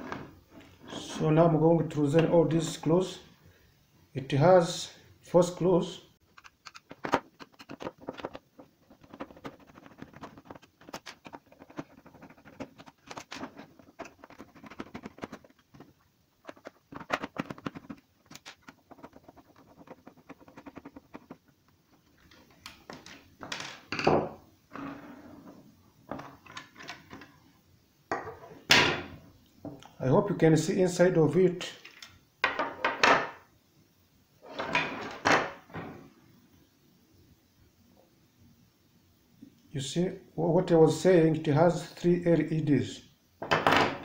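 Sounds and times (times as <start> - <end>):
screwdriver scratching on plastic: 6.4 - 21.5.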